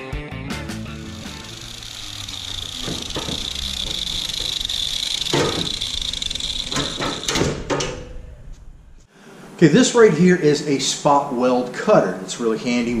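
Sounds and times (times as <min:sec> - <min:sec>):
high-pitched whine: 0:00.6 - 0:09.0.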